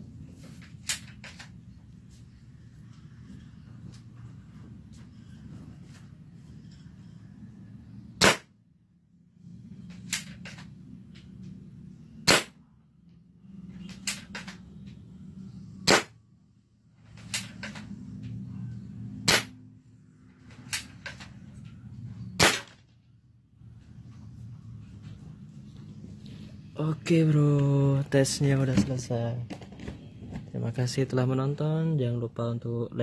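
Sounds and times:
airsoft gun shots: 0:08.2 - 0:08.5, 0:12.2 - 0:12.6, 0:15.9 - 0:16.2, 0:19.2 - 0:19.6, 0:22.4 - 0:22.8.

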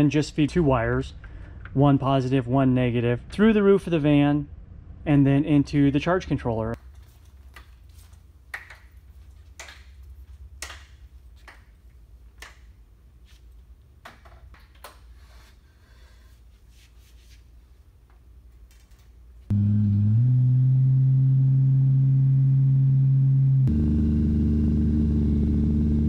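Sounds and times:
low steady hum: 0:19.5 - 0:26.0.

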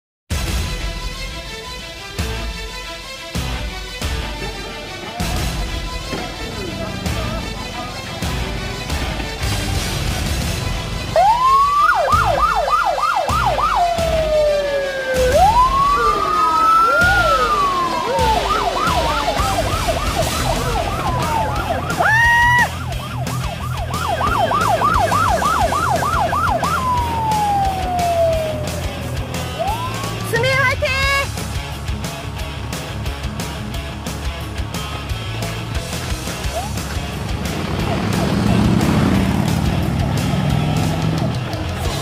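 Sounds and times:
electronic vehicle siren: 0:11.1 - 0:30.3.

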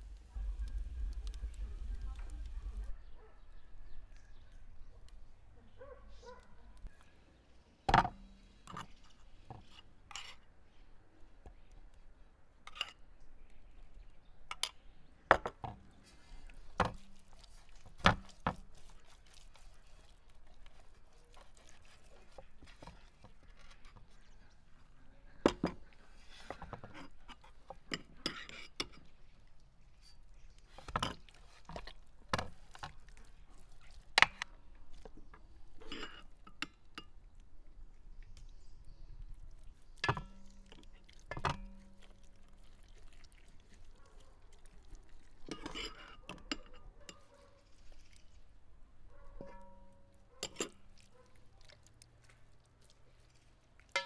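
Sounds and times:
wet rubbing of chicken: 0:15.9 - 0:25.0, 0:29.1 - 0:35.2, 0:39.2 - 0:45.6, 0:47.2 - 0:48.8, 0:50.2 - 0:54.0
knocks and clinks on metal basin: 0:40.0 - 0:40.6, 0:49.3 - 0:50.8.

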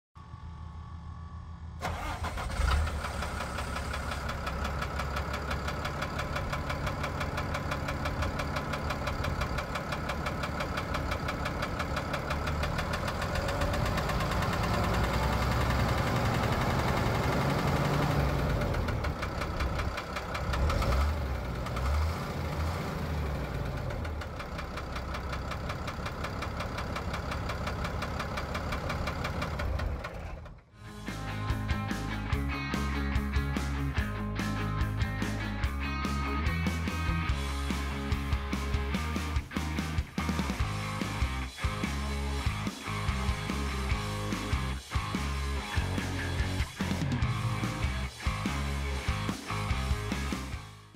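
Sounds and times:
faint high whine: 0:00.2 - 0:01.8
diesel engine hum: 0:00.2 - 0:50.9
rapid diesel knock: 0:03.1 - 0:21.9, 0:23.6 - 0:30.4.

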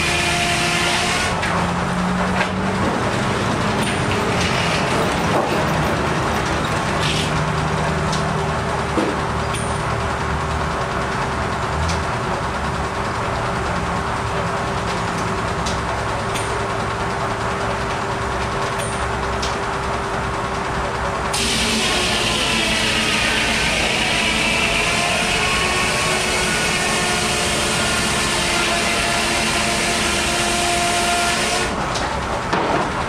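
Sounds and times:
sawmill engine and blade din: 0:00.0 - 0:33.0
log carriage clanks: 0:02.4 - 0:07.4.

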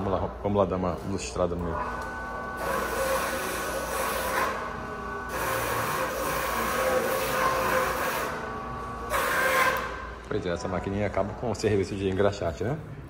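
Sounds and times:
shoe-shine machine motor humming: 0:01.8 - 0:10.3.

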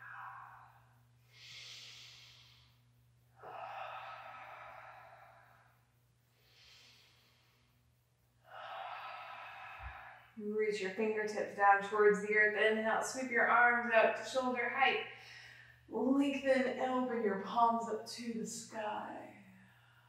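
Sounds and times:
woman breathing deeply: 0:00.0 - 0:10.4, 0:15.1 - 0:15.9
low steady hum: 0:00.0 - 0:20.0.

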